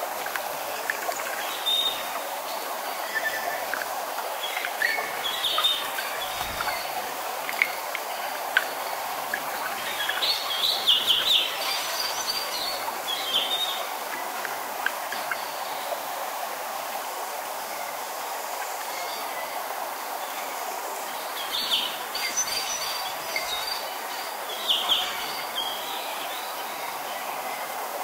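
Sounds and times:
small waterfall rushing: 0.0 - 28.0
wind in forest: 0.0 - 28.0
birds chirping: 0.7 - 16.0, 21.2 - 27.2.

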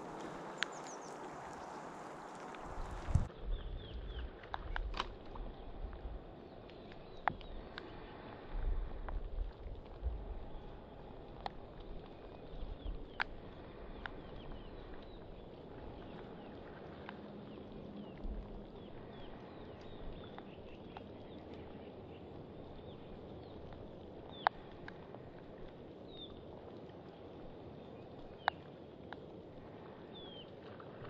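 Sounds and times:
small birds chirping: 0.0 - 4.4, 10.3 - 24.9, 30.0 - 30.6
wind buffets on microphone: 0.0 - 6.3, 7.0 - 17.0
hiss of wind and water: 0.0 - 31.0.

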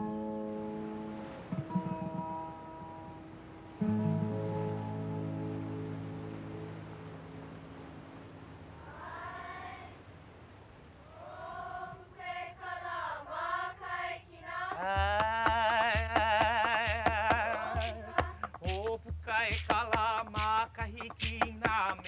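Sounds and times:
low repeating drumbeat: 14.8 - 22.0.

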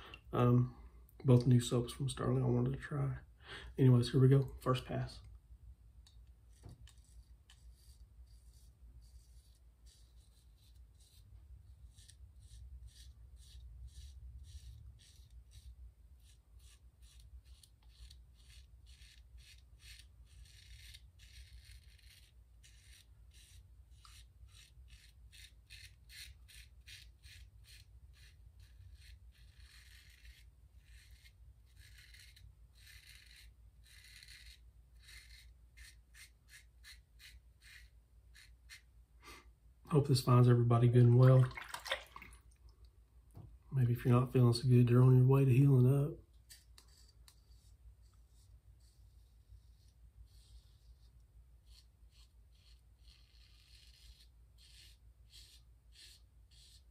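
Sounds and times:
razor rasping through stubble: 6.5 - 38.9, 44.0 - 56.9.

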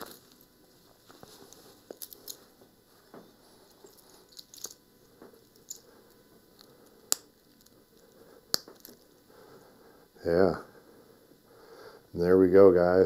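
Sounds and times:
watch bracelet clicks and clinks: 3.8 - 4.8.

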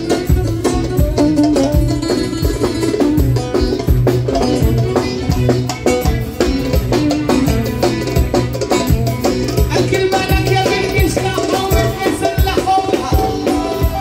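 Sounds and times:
electric oud melody: 0.0 - 9.6
drum and percussion beat: 0.0 - 14.0
keyboards: 0.0 - 14.0.

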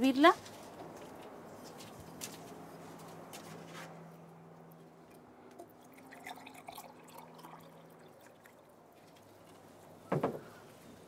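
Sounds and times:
liquid trickling into cup: 5.1 - 9.1.

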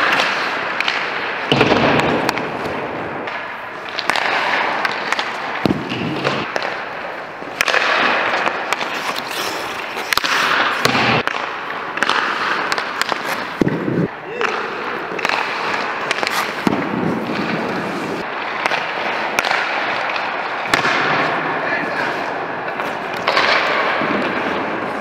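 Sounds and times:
sharp cracks and thuds: 0.0 - 6.8, 10.0 - 21.4
skate blades scraping ice: 0.0 - 25.0.

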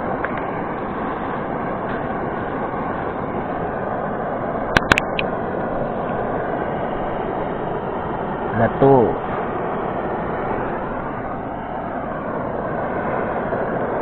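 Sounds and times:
torch lighter flame hissing: 0.0 - 14.0
sharp clicks: 4.7 - 5.3.

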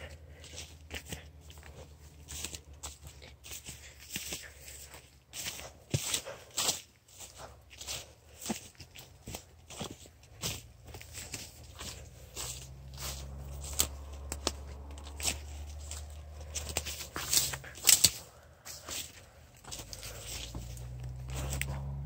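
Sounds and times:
footsteps crunching through dry leaves: 0.0 - 22.0
twigs snapping underfoot: 10.4 - 22.0.

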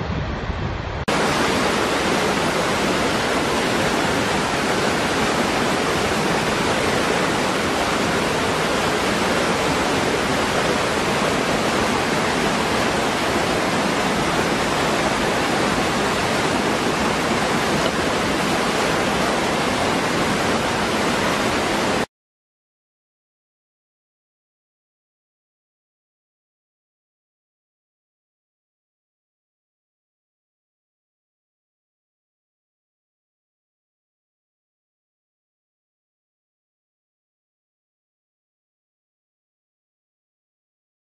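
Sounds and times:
waterfall rushing: 1.0 - 22.1.

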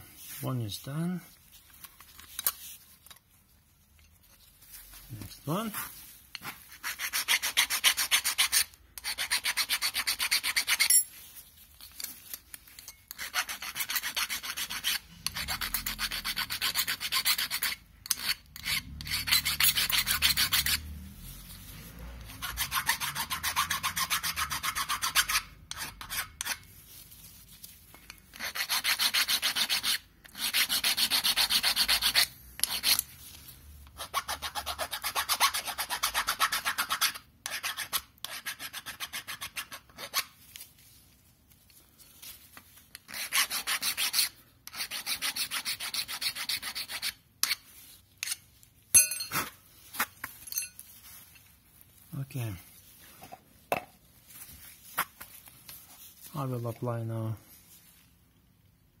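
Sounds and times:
hand file scraping metal: 6.4 - 11.1, 12.8 - 26.7, 28.3 - 33.1, 33.9 - 40.4, 42.9 - 48.5.

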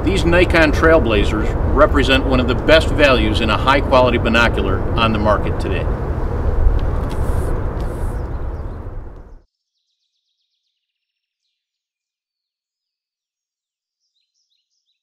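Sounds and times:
low rumble with hiss: 0.0 - 9.4.

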